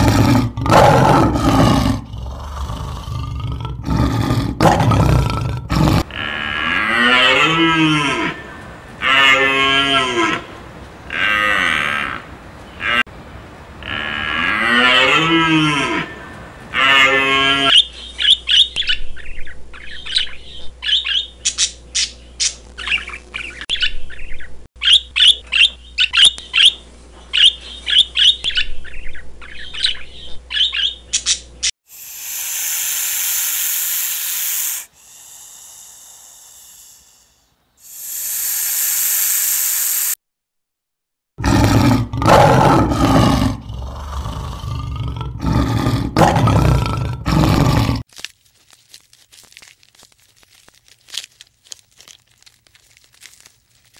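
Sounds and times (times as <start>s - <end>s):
lion roaring: 0.0s - 8.5s, 41.4s - 48.0s
hiss-like noise bursts: 31.9s - 40.2s.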